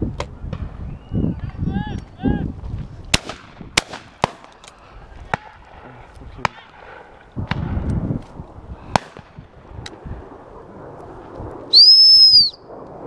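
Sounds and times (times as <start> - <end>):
sharp cracks: 3.1 - 8.0, 8.9 - 10.4
high dog whistle blast: 11.7 - 12.6.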